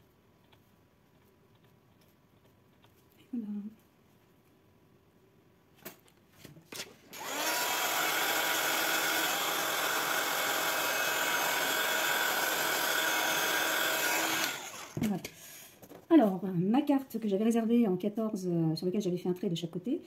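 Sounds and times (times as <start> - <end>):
small electric fan motor running: 7.2 - 15.0.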